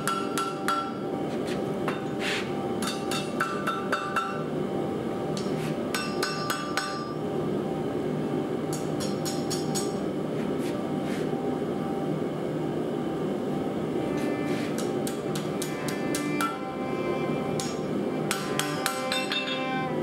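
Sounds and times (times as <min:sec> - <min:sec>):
hammer striking steel on anvil: 0:00.0 - 0:01.0, 0:02.8 - 0:04.5, 0:05.4 - 0:07.2, 0:08.7 - 0:10.0, 0:14.8 - 0:16.7, 0:17.6 - 0:19.8
low background hum: 0:00.0 - 0:20.0.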